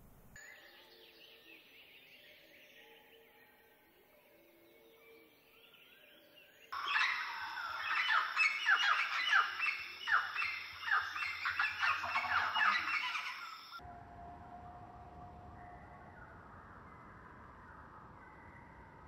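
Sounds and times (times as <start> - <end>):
loud chorus of birds chirping: 5.2 - 13.8
faint bird calls: 6.8 - 13.8.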